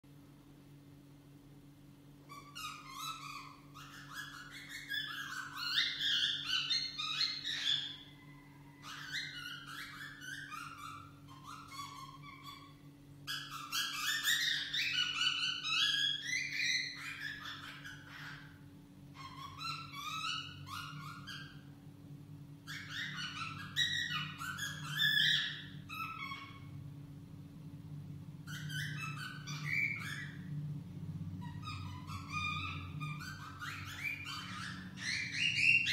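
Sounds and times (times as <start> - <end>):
cockatiel whistling and warbling: 2.2 - 21.7, 22.6 - 26.8, 28.4 - 30.6, 31.4 - 35.9.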